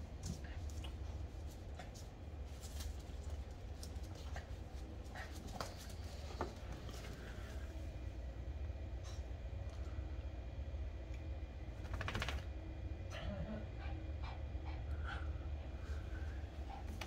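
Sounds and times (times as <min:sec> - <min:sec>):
paws and claws scuffling on floor: 0:00.1 - 0:07.9.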